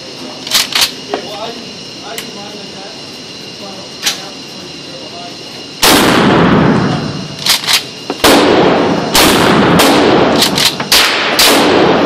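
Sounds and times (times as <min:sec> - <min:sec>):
shotgun pump racking clacks: 0:00.5 - 0:00.9, 0:07.4 - 0:07.8, 0:10.4 - 0:10.8
shotgun shots echoing: 0:05.8 - 0:07.0, 0:08.2 - 0:12.0.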